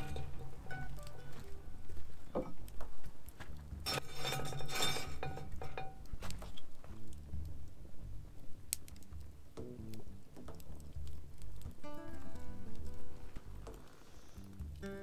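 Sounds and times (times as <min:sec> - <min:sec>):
cookware clinking and scraping: 0:00.0 - 0:01.1, 0:03.8 - 0:06.5
soft background music: 0:00.0 - 0:15.0
clattering rattle: 0:03.9 - 0:06.1.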